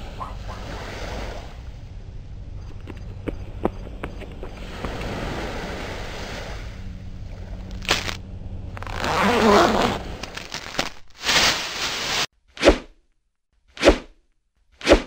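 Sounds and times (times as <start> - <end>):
jacket zipper pulled down: 7.7 - 8.2, 8.8 - 12.8
short swishing bursts: 13.7 - 14.2, 14.8 - 15.0.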